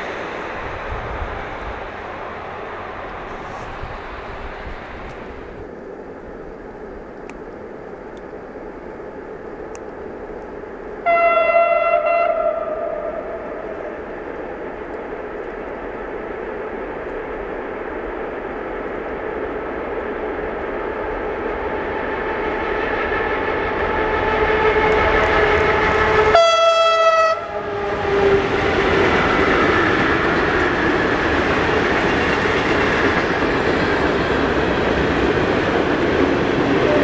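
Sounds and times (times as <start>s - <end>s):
freight train rumbling past: 0.0s - 37.0s
train horn blast: 11.0s - 14.0s, 24.0s - 28.9s.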